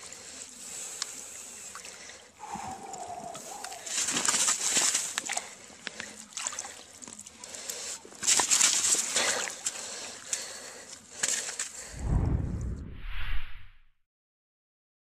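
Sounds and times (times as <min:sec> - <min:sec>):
water splashing and trickling: 0:00.0 - 0:11.9.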